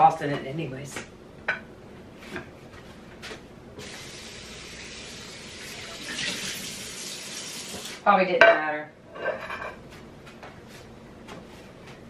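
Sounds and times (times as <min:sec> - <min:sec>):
water running into sink: 0:03.8 - 0:08.0.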